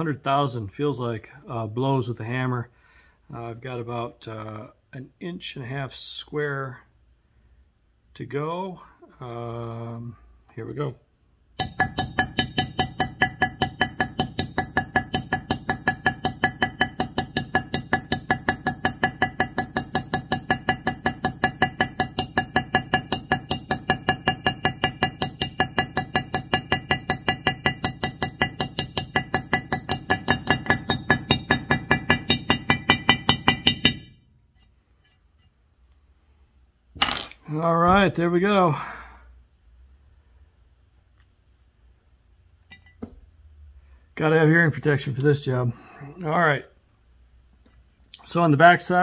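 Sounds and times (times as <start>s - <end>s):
hammer striking steel punch: 11.6s - 34.2s.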